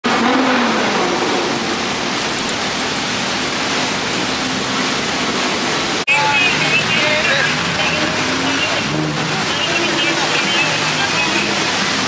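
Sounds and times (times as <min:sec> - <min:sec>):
car engine: 0:00.0 - 0:12.0
traffic: 0:00.0 - 0:12.0
crowd noise: 0:06.1 - 0:12.0.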